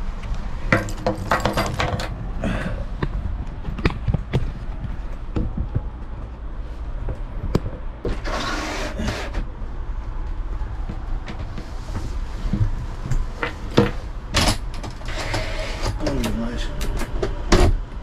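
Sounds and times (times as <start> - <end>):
steady low hum: 0.0 - 18.0
rustling on a bench seat: 3.6 - 14.1.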